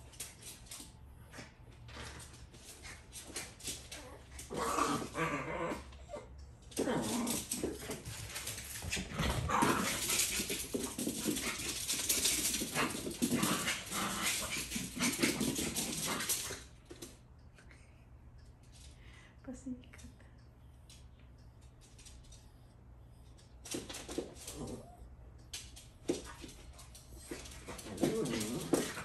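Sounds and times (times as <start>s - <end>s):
dog growls: 4.0s - 7.9s, 9.2s - 11.8s, 12.6s - 16.6s, 27.7s - 29.0s
dogs scuffling: 6.7s - 17.1s, 23.6s - 29.0s.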